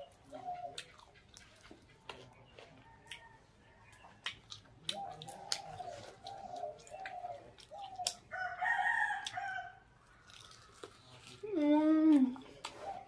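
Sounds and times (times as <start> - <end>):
biting and chewing clicks: 0.7 - 2.4, 3.9 - 8.3, 10.0 - 11.6.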